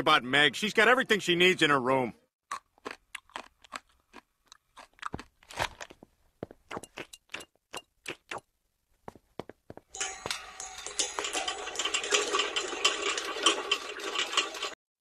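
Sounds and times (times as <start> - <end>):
person chewing crunchy snacks: 2.4 - 8.4.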